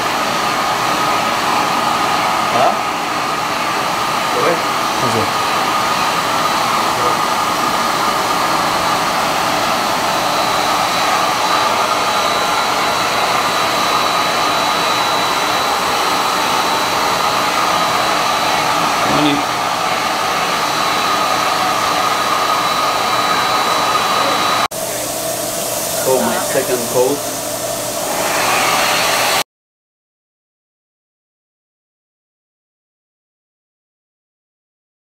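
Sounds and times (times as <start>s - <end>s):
turbine blower rushing air: 0.0s - 29.4s
thin high whine: 4.3s - 28.8s.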